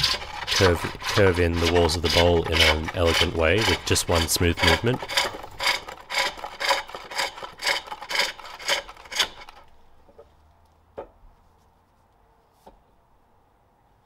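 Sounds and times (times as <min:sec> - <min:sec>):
hook tool rasping on wood: 0:00.0 - 0:09.7.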